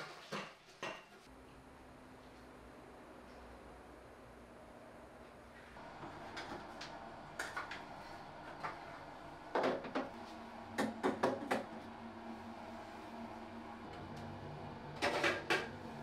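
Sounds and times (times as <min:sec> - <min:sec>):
plastic dispensers knocking and clattering: 0:09.6 - 0:10.1.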